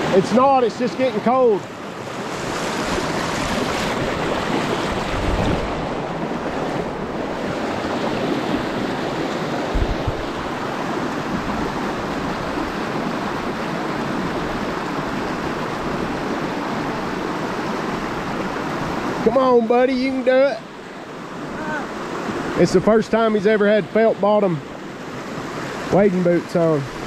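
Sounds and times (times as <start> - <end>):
creek water rushing: 0.0 - 27.0.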